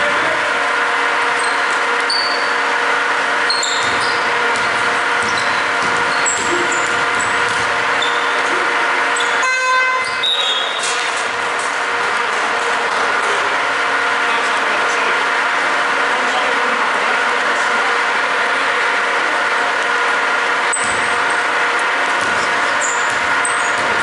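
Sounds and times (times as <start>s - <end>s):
hall noise: 0.0s - 24.0s
sneakers squeaking on court: 1.4s - 2.6s, 3.4s - 9.4s, 20.7s - 21.5s, 22.2s - 24.0s
basketball bouncing: 3.5s - 8.6s, 20.7s - 24.0s
horn-like buzzer: 9.1s - 10.8s.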